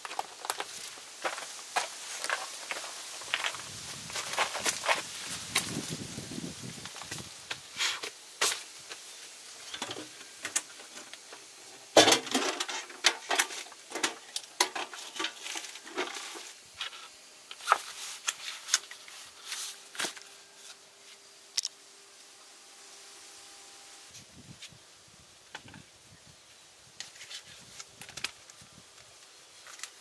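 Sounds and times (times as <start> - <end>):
camp gear clicks and knocks: 9.6 - 19.0.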